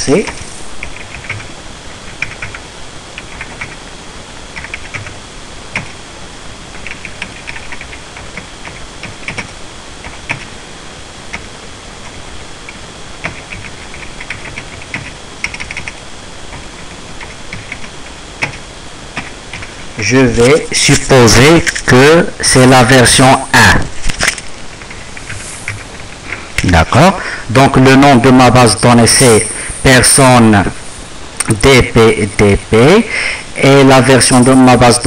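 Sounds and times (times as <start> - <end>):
steady background hiss: 0.0 - 35.0
typing on computer keyboard: 0.2 - 1.5, 2.1 - 2.6, 3.2 - 3.8, 4.5 - 6.0, 6.7 - 10.5, 11.3 - 18.6.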